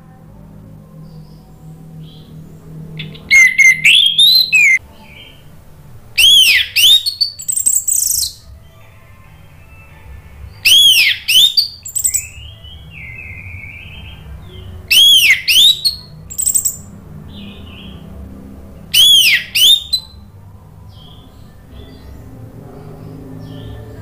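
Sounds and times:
quiet scratchy bird notes: 0.0s - 24.0s
thrush singing whistled phrases: 3.0s - 5.3s, 6.2s - 8.4s, 10.6s - 16.9s, 18.9s - 20.2s.

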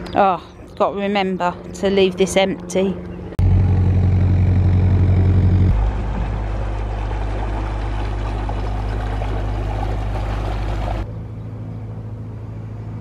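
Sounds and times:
boat engine humming: 0.0s - 13.0s
water rushing: 5.7s - 11.1s.

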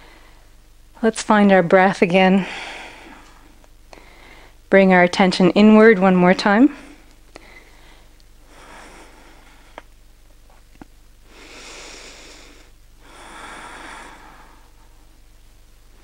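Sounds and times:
woman breathing deeply: 0.0s - 0.6s, 2.3s - 4.7s, 6.7s - 9.9s, 11.2s - 15.1s.

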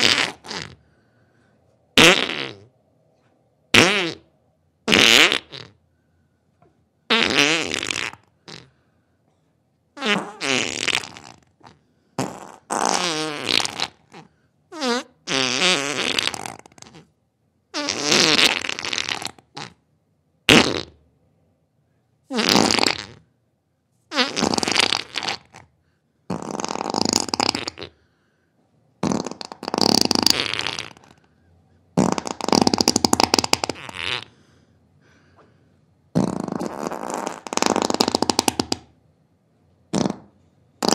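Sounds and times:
farts: 0.0s - 0.8s, 2.0s - 2.7s, 3.7s - 4.3s, 4.9s - 5.8s, 7.1s - 8.7s, 10.0s - 17.1s, 17.7s - 19.8s, 20.5s - 21.0s, 22.3s - 23.3s, 24.1s - 25.7s, 26.3s - 28.0s, 29.0s - 31.2s, 32.0s - 34.3s, 36.1s - 38.9s, 39.9s - 40.9s.

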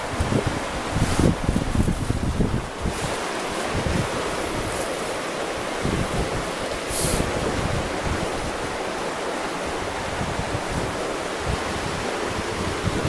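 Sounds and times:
river water flowing: 0.0s - 13.0s
wind buffeting microphone: 0.0s - 13.0s
short sharp hiss: 6.8s - 7.3s.

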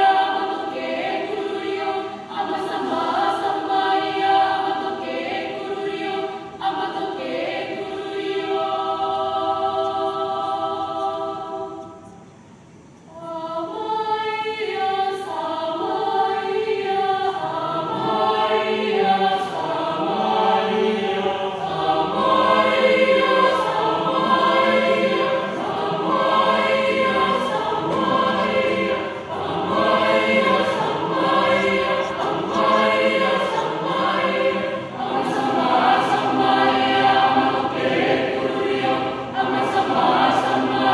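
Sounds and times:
mixed choir singing unaccompanied: 0.0s - 12.4s, 13.0s - 40.9s.

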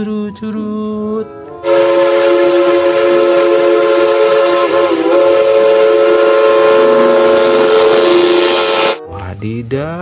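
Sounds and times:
steam locomotive chime whistle: 1.6s - 9.0s.

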